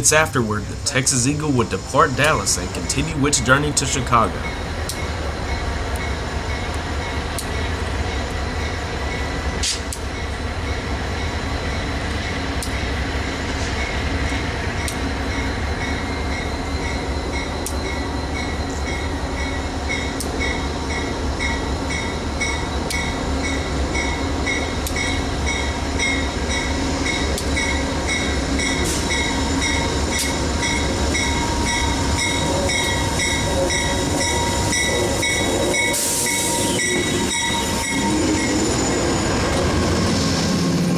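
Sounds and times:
diesel locomotive rumbling: 0.0 - 40.9
locomotive bell ringing: 14.8 - 39.5
train wheel squeal: 15.3 - 40.9.

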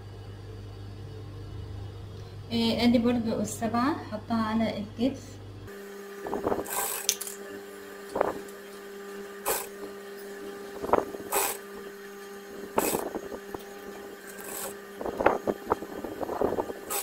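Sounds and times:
sewing machine stitching: 6.4 - 7.5, 9.4 - 10.4, 11.0 - 11.8, 12.7 - 15.6, 16.7 - 17.0.

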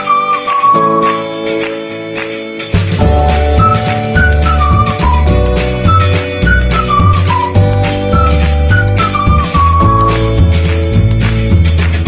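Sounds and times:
background music with bass: 0.0 - 12.0.

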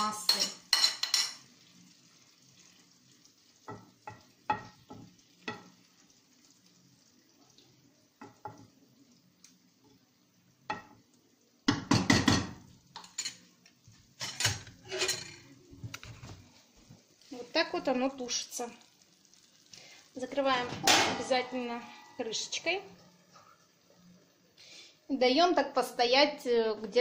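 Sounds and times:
spoon scraping frying pan: 0.0 - 1.5, 12.5 - 13.5, 14.2 - 15.6
faint sizzle: 0.0 - 27.0.

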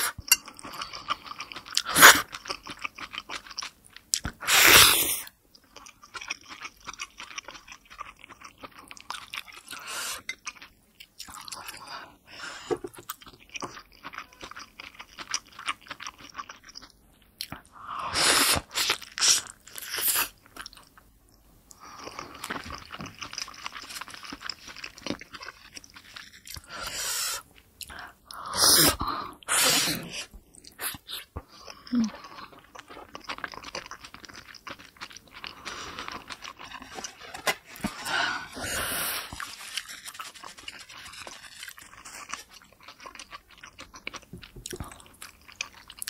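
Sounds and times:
wet chewing: 30.1 - 46.0.

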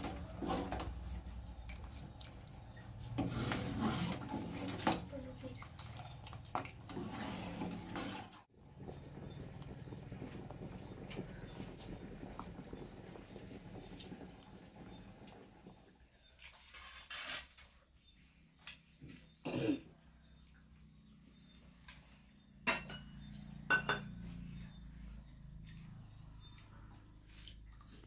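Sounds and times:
curry boiling in a pot: 0.0 - 16.4.

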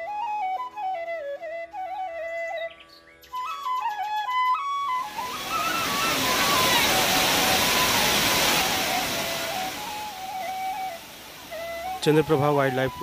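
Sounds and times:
flute melody over drone: 0.0 - 13.0
rushing water of spillway: 4.9 - 13.0.

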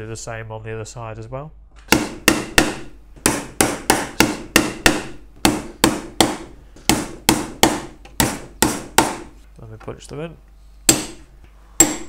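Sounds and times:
hammer striking nails into wood: 1.9 - 9.3, 10.9 - 12.0.

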